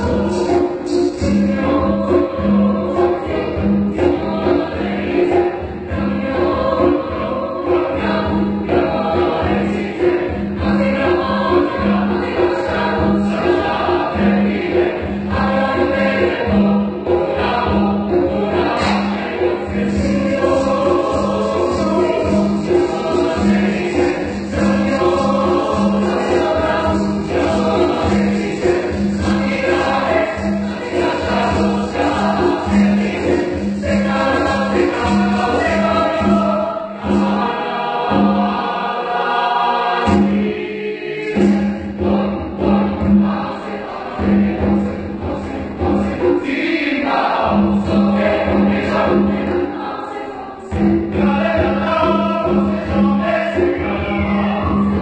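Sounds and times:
chamber choir singing: 0:00.0 - 0:55.0.

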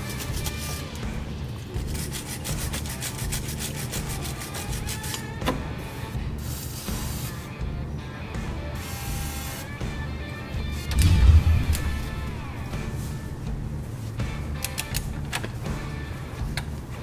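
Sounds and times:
background music: 0:00.0 - 0:17.0
wire brush scrubbing rusty steel: 0:01.6 - 0:05.4.

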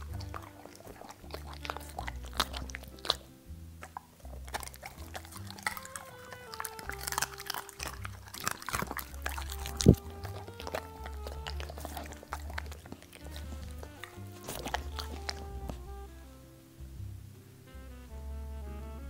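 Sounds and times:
dog chewing and crunching food: 0:00.0 - 0:16.2
background music with low notes: 0:00.0 - 0:19.0.

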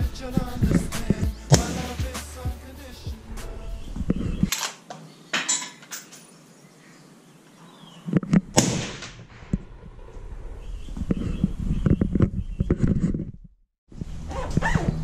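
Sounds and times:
suppressed rifle shots: 0:08.5 - 0:09.4.

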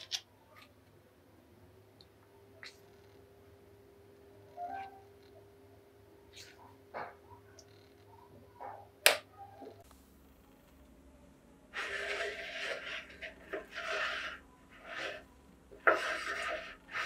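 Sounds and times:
hands scraping meat grinder plate: 0:11.8 - 0:15.2, 0:15.8 - 0:17.0.

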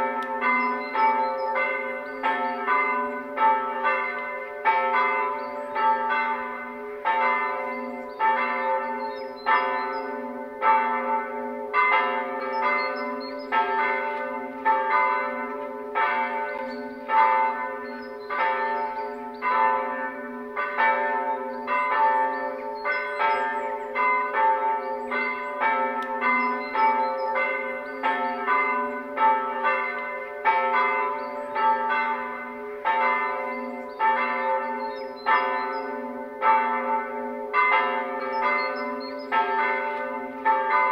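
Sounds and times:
church bells pealing: 0:00.0 - 0:40.9.

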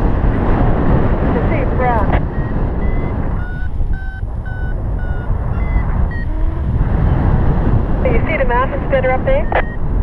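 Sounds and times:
wind rushing over microphone: 0:00.0 - 0:10.0
variometer short beeps: 0:02.1 - 0:07.2, 0:09.4 - 0:09.9.

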